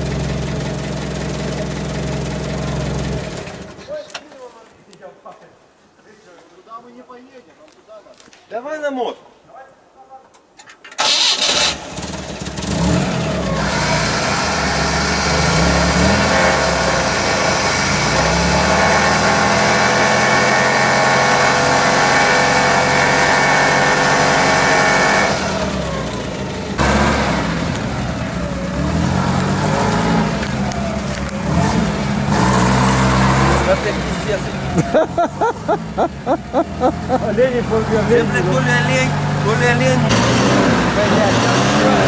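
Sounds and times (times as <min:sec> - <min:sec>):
engine revving: 0:11.0 - 0:42.0.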